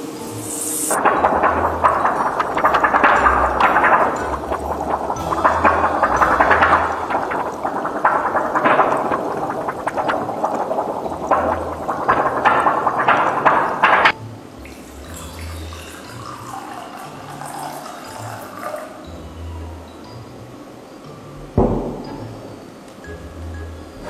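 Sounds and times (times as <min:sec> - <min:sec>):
water bubbling at a rolling boil: 0:00.9 - 0:20.4
water poured into a cup: 0:14.6 - 0:19.1.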